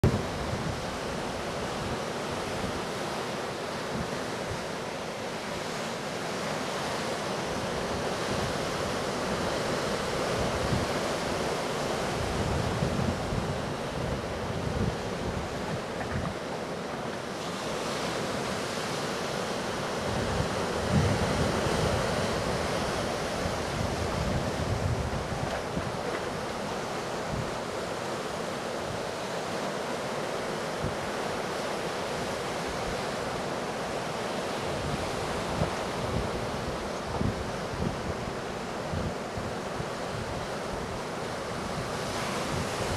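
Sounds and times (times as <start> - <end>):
waves breaking roar: 0.0 - 42.9
wind buffeting microphone: 12.1 - 16.5, 20.0 - 27.8, 34.6 - 42.9.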